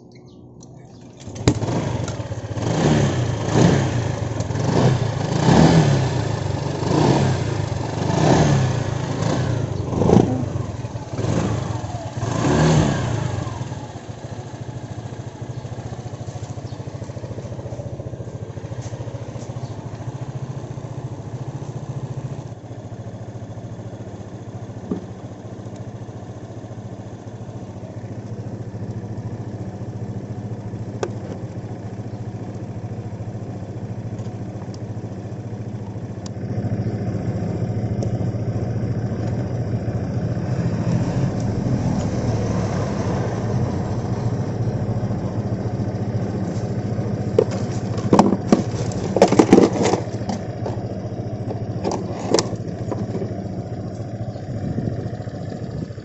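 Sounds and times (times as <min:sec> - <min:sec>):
scooter engine revving and idling: 0:00.0 - 0:56.0.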